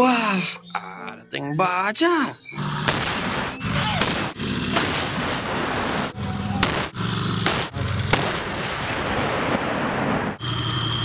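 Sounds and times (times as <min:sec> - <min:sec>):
tank gunfire shots: 0:02.6 - 0:10.4.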